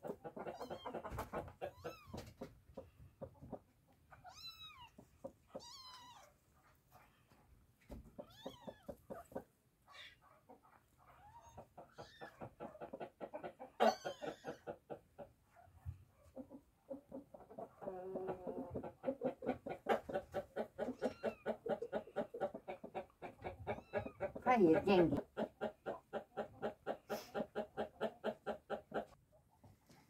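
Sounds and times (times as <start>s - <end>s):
hen clucking: 0.0s - 29.4s
kittens mewing: 0.4s - 2.4s, 4.1s - 7.3s, 8.2s - 12.6s, 13.8s - 14.7s, 20.8s - 21.7s.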